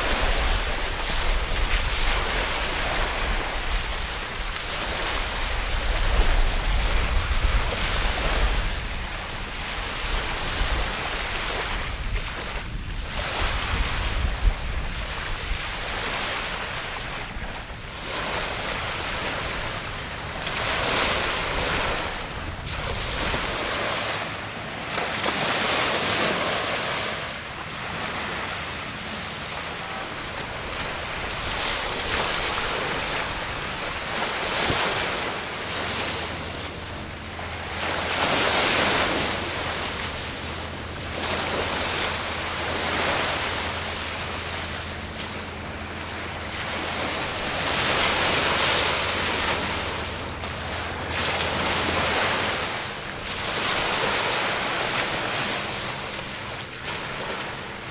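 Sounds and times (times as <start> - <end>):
wind noise on microphone: 0.0 - 24.2
low steady hum: 0.0 - 57.9.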